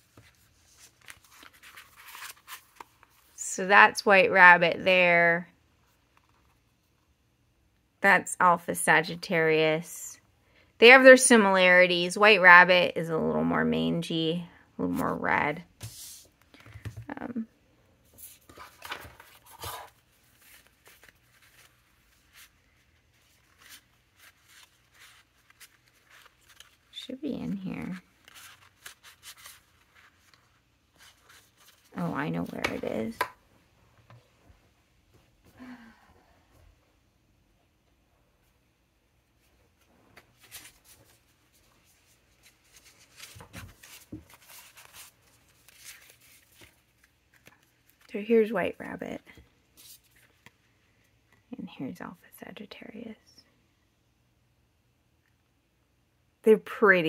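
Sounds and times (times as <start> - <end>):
rustling of paper cards: 0.0 - 3.4, 14.9 - 17.4, 18.0 - 33.4, 39.4 - 51.1.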